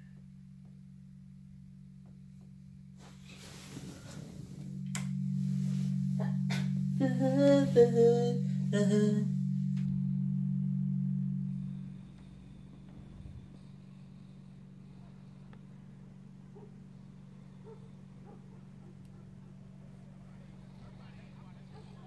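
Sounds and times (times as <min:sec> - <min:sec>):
low hum: 0:00.0 - 0:22.0
wavering sung phrase: 0:06.2 - 0:09.4.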